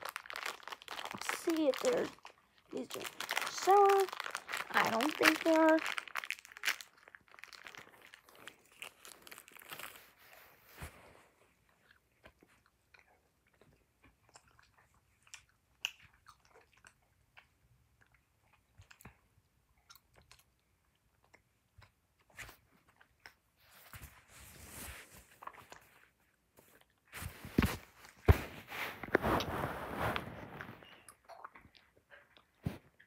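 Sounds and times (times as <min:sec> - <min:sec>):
mouth chewing clicks and smacks: 0:12.2 - 0:23.5.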